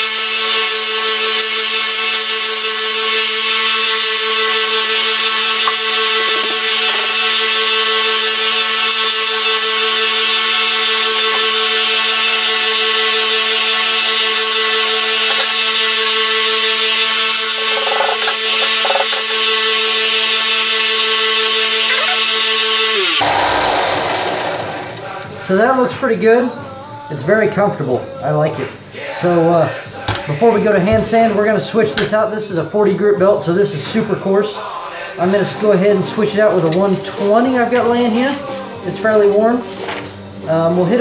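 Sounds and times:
motor spinning down: 0.0 - 25.3
belt sander running: 0.0 - 25.4
wooden handle against sanding belt: 15.0 - 16.4, 17.6 - 19.4.

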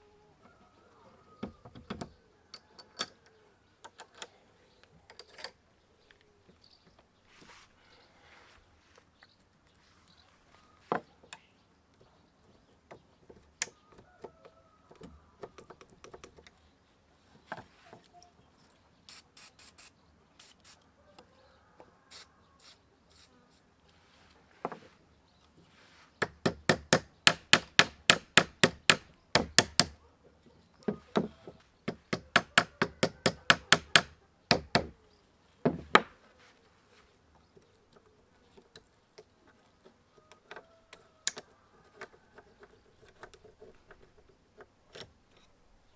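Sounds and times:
hammer tapping steel punch: 31.9 - 34.9.

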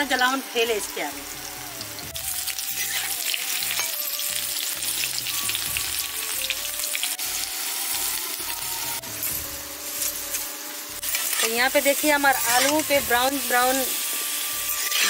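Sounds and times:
potato wedges sizzling in oil: 0.0 - 15.0
metal spatula stirring: 12.3 - 13.0, 14.7 - 15.0.

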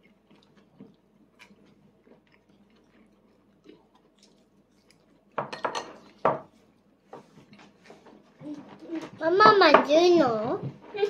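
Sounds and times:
tableware clatter: 5.4 - 6.5.

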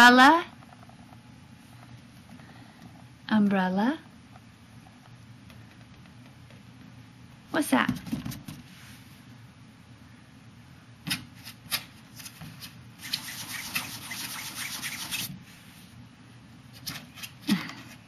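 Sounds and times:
rustling and rubbing: 12.2 - 16.0.

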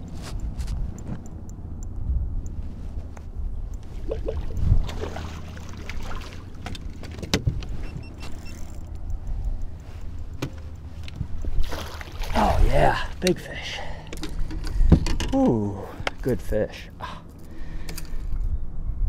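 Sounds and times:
low rumble of wind and water: 0.0 - 19.0.

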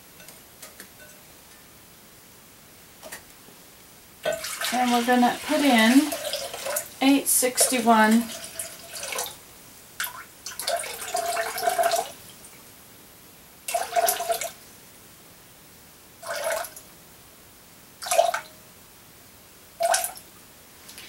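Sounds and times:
water pouring into a pitcher: 4.2 - 9.4, 10.0 - 12.2, 13.7 - 14.6, 16.2 - 16.8, 18.0 - 18.5, 19.8 - 20.2.

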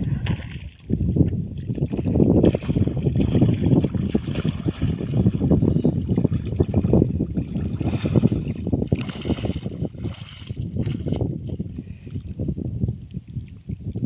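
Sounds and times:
wind buffeting microphone: 0.0 - 14.0
water sloshing around legs: 1.5 - 11.3.

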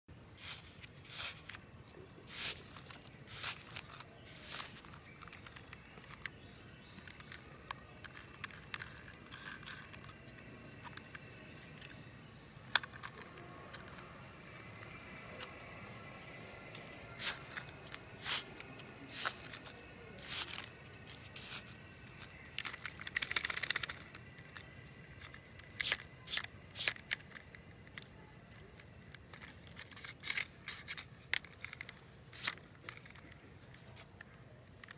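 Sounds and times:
sand scraping and rustling: 0.3 - 5.7, 15.3 - 24.0
plastic toys clicking: 2.2 - 34.9.

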